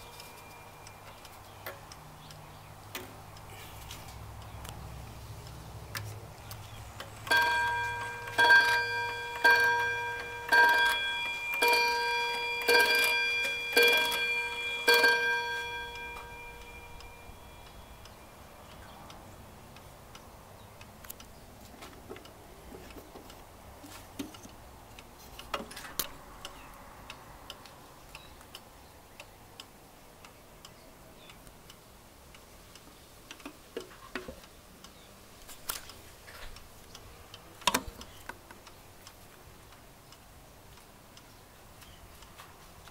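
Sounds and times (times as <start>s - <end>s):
clock mechanism clicks: 0.0s - 19.2s
clock ticking faintly: 0.0s - 35.1s
clock striking the hour: 7.0s - 18.3s.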